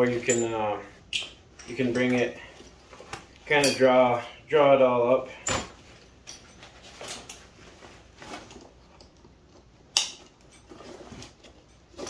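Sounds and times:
rope and fabric rustling: 5.7s - 9.7s.

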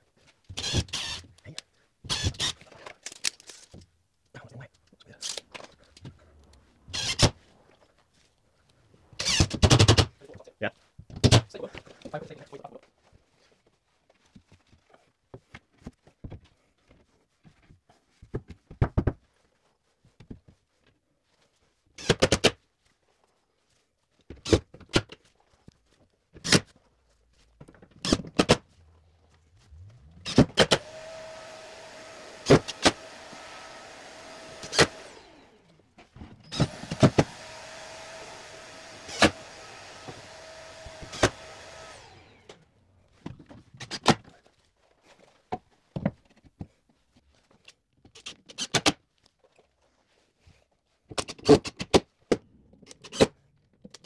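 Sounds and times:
cordless drill motor running: 29.6s - 42.8s.

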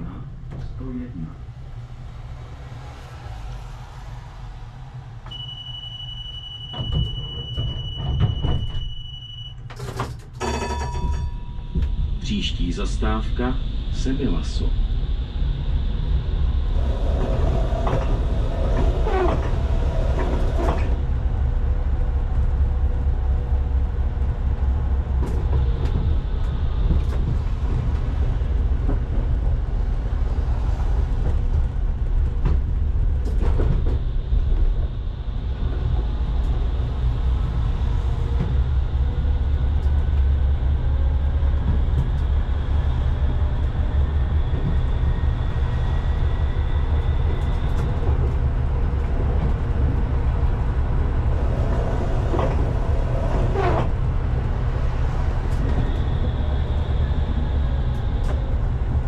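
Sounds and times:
tram wheels rumbling on rail: 0.0s - 59.0s
wheels screeching: 14.8s - 21.4s, 42.4s - 59.0s.

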